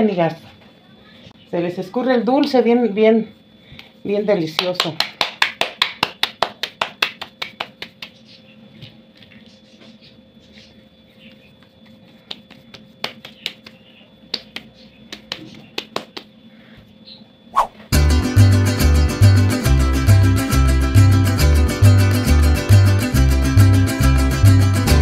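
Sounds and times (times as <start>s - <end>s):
hands slapping dough: 4.6s - 8.2s, 12.1s - 16.3s.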